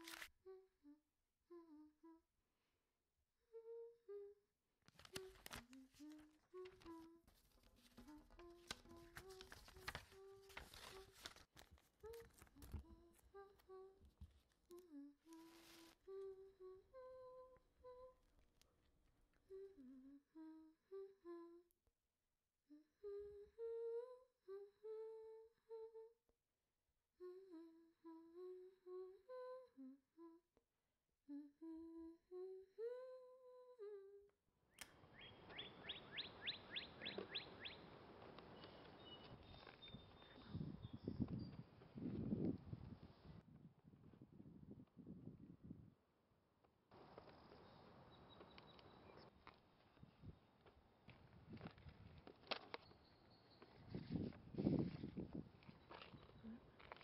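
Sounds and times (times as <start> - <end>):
paper rustling: 0.0 - 0.3, 4.8 - 16.0
person humming: 0.0 - 2.4, 3.5 - 11.4, 12.0 - 18.2, 19.4 - 21.7, 22.7 - 26.3, 27.2 - 30.6, 31.3 - 34.4.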